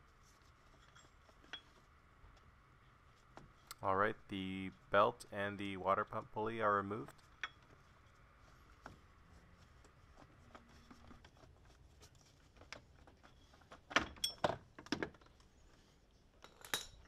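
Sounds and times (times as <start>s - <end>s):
clicks and clinks of metal parts: 14.0s - 14.6s, 16.4s - 17.0s.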